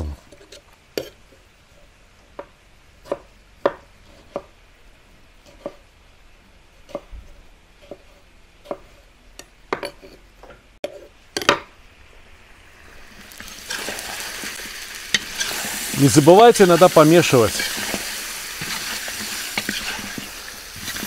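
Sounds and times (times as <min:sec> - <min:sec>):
knife chopping on wooden board: 0:03.0 - 0:04.5
meat frying with loud sizzle: 0:11.8 - 0:21.0.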